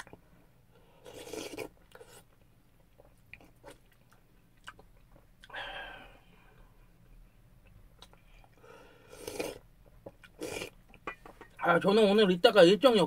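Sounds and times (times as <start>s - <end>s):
man eating noisily: 1.0s - 2.3s, 8.0s - 10.8s
soft chewing: 1.0s - 5.6s, 6.3s - 11.6s.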